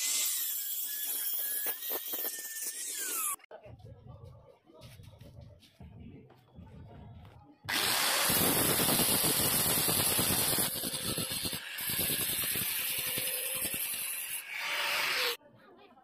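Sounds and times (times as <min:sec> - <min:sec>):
angle grinder grinding metal: 0:00.0 - 0:03.5, 0:07.7 - 0:15.4.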